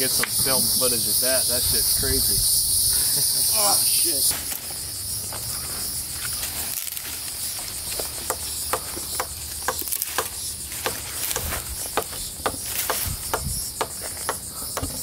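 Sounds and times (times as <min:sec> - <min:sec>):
insects buzzing: 0:00.0 - 0:15.0
twigs snapping and crackling: 0:06.2 - 0:13.2.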